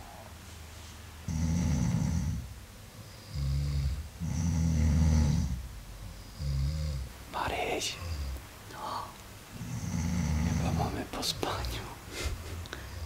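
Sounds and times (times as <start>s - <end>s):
person snoring: 1.3s - 2.4s, 3.3s - 5.6s, 6.3s - 13.0s.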